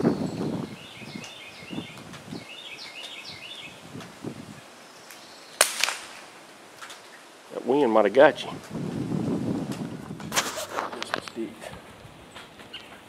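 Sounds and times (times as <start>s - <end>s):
small birds chirping: 0.0s - 5.6s, 6.8s - 7.7s, 12.2s - 13.0s
gunshot crack: 5.6s - 6.3s.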